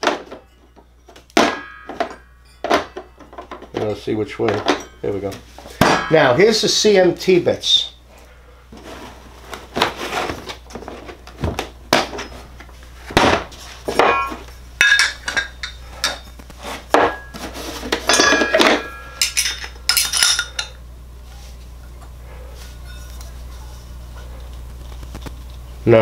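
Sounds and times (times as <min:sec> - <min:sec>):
metal bits clinking together: 0:14.0 - 0:16.3, 0:18.1 - 0:20.8.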